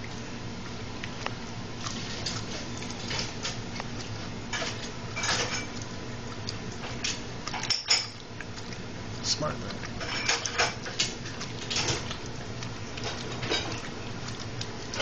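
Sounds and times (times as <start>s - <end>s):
low steady hum: 0.0s - 15.0s
dog licking and lip smacking: 5.6s - 15.0s.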